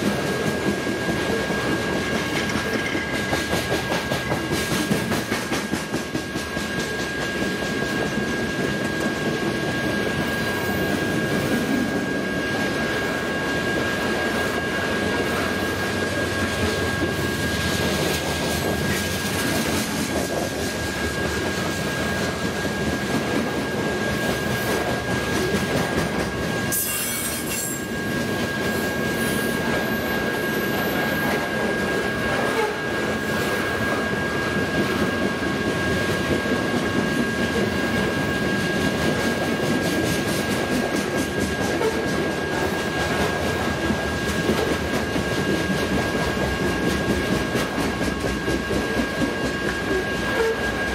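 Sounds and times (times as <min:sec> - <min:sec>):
train wheels rumbling on rails: 0:00.0 - 0:50.9
high-pitched wheel squeal: 0:26.7 - 0:28.1, 0:49.9 - 0:50.9.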